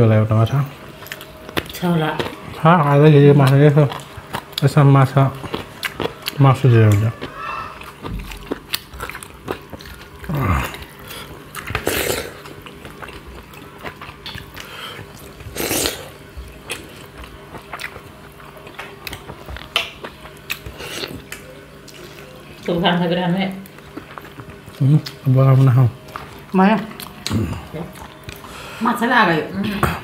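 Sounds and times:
chewing and mouth noises: 0.9s - 22.8s, 23.6s - 28.7s.

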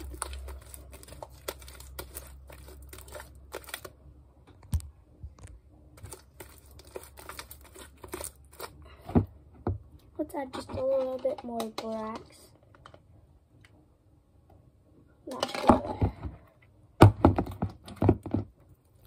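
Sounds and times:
slime being kneaded: 0.0s - 4.0s.

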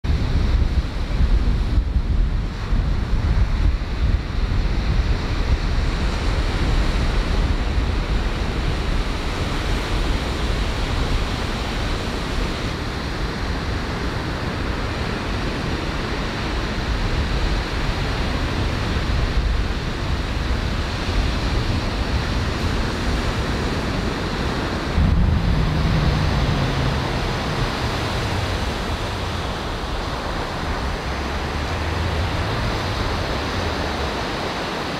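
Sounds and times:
wind rumbling on microphone: 0.0s - 34.9s
low hum: 24.2s - 34.4s.

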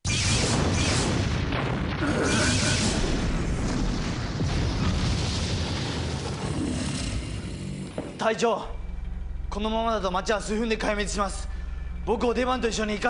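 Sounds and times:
explosion with heavy rumble: 0.2s - 8.0s.

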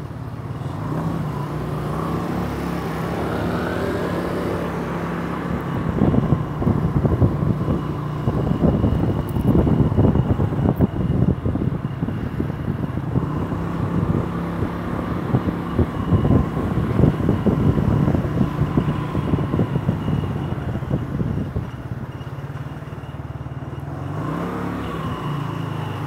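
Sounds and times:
motor scooter engine: 0.0s - 26.0s
wind buffeting microphone: 4.6s - 22.2s.

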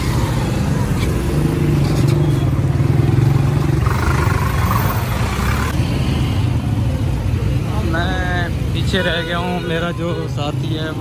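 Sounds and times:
vehicle engine rumbling: 0.0s - 8.5s.

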